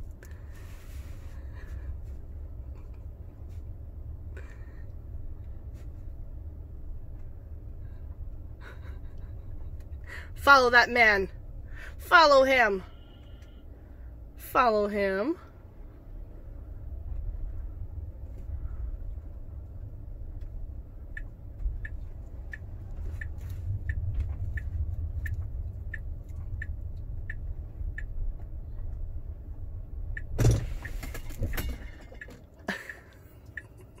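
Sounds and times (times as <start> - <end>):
car road rumble: 0.0 - 34.0
turn signal ticking: 16.5 - 34.0
sharp thump: 30.4 - 31.8.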